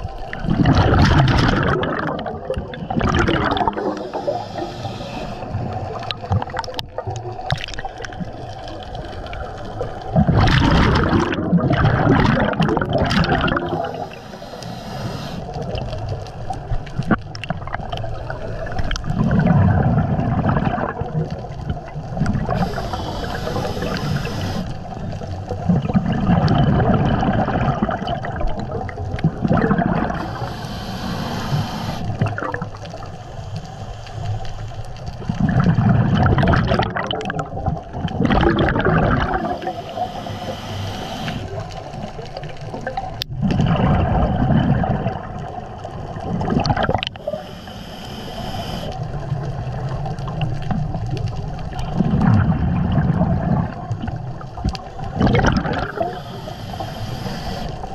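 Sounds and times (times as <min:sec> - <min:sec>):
exhaled bubbles gurgling: 0:00.0 - 0:57.9
regulator hiss on inhalation: 0:03.6 - 0:05.7, 0:13.8 - 0:15.6, 0:22.5 - 0:24.9, 0:30.1 - 0:32.3, 0:39.3 - 0:41.8, 0:47.1 - 0:49.0, 0:55.8 - 0:57.9.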